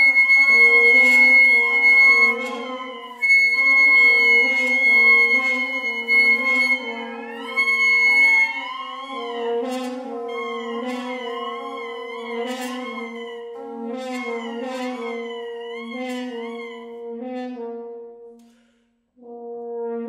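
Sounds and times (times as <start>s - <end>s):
bassoon: 0.0s - 18.6s, 19.2s - 20.0s
clarinet: 0.0s - 18.6s, 19.2s - 20.0s
flute: 0.0s - 18.6s
oboe: 0.0s - 18.6s
french horn: 0.0s - 20.0s.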